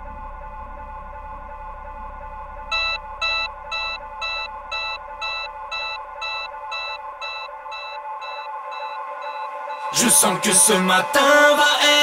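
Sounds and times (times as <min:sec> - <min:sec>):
synth pad chords: 0:00.0 - 0:12.0
alarm clock beeping: 0:02.7 - 0:10.3.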